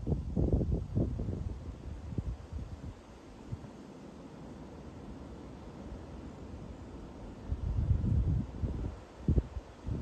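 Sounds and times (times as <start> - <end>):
gusty wind buffeting microphone: 0.0 - 3.7, 7.2 - 10.0.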